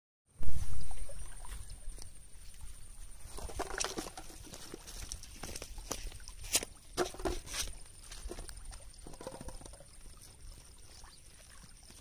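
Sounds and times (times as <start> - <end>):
water lapping: 0.5 - 12.0
footsteps on stones: 3.2 - 8.6.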